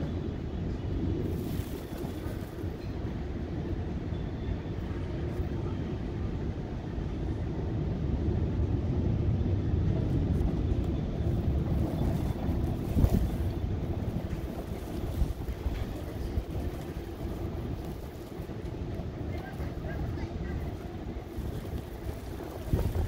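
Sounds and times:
car road and engine noise: 0.0s - 4.1s, 6.1s - 23.0s.

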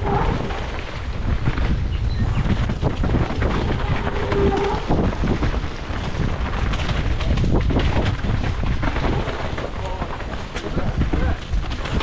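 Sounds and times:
bike rattling and knocking: 0.0s - 12.0s
tyres rolling over dirt: 0.0s - 12.0s
wind buffeting microphone: 0.0s - 12.0s.

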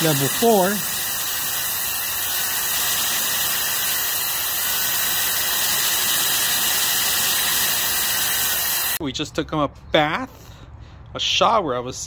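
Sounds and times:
blow dryer rushing air: 0.0s - 9.0s.

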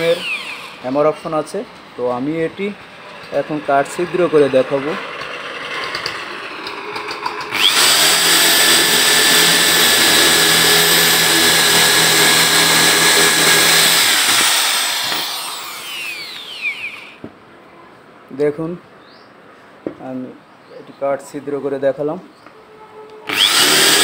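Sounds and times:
drill boring through wood: 0.0s - 0.9s, 7.5s - 17.2s, 23.3s - 24.0s.

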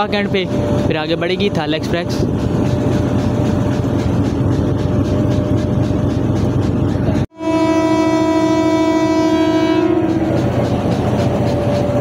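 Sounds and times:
idling train rumble: 0.0s - 12.0s
locomotive horn chord: 7.3s - 10.6s.

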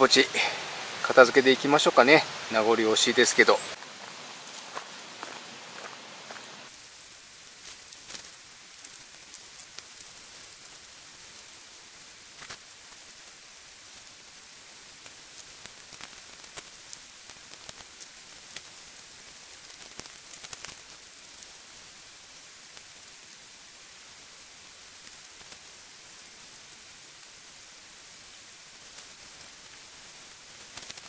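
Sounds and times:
stream rushing: 0.0s - 31.0s
tent groundsheet rustling: 6.4s - 31.0s.

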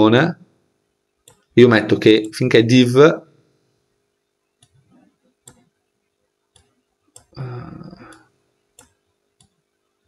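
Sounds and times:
computer mouse clicking: 1.2s - 1.5s, 5.4s - 5.7s, 6.5s - 7.4s, 8.8s - 9.6s.

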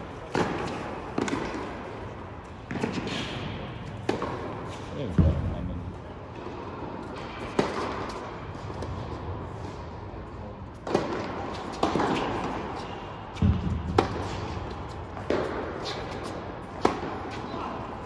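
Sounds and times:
tennis ball bouncing on hard court: 0.3s - 1.8s, 2.6s - 5.5s, 7.4s - 9.0s, 10.8s - 17.4s
tennis ball struck by rackets: 0.3s - 1.8s, 2.7s - 5.4s, 7.4s - 9.0s, 10.8s - 17.4s.

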